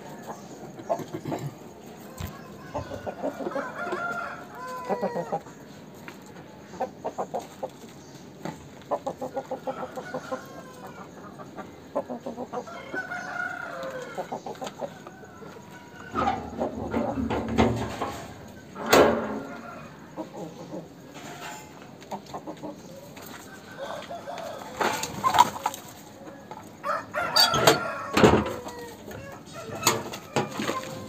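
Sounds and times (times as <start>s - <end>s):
rooster clucking: 0.0s - 5.5s, 8.8s - 23.0s, 23.7s - 31.0s
rooster pitch-bending calls: 26.8s - 31.0s.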